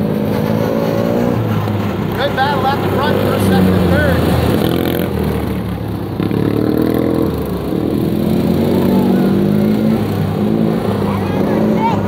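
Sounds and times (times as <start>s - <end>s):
racing lawn tractor engines: 0.0s - 12.0s.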